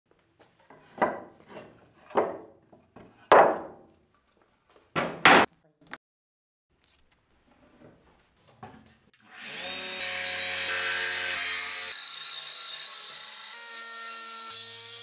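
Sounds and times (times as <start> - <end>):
wood scraping: 0.7 - 3.8
wooden slabs thudding: 2.0 - 3.9, 5.0 - 5.5.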